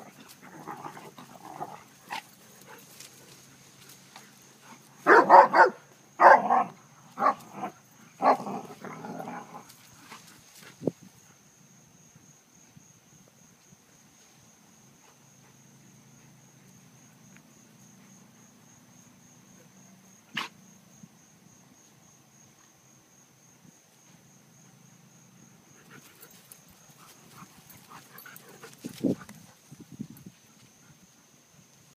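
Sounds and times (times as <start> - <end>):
high insect drone: 0.0 - 31.9
dogs scuffling through grass: 1.2 - 5.1, 26.0 - 30.4
dog barking: 5.0 - 7.4.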